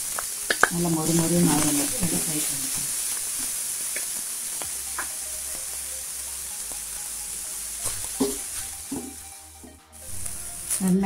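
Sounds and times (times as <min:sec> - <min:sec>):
leaves sizzling in hot oil: 0:00.0 - 0:11.0
spatula scraping and tapping pan: 0:07.8 - 0:09.8.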